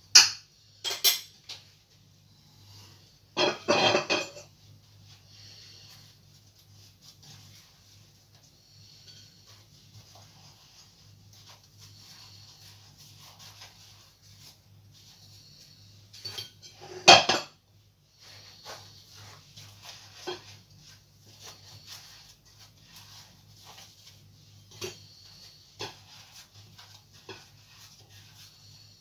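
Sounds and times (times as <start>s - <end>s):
sugar scraping: 18.1s - 29.0s.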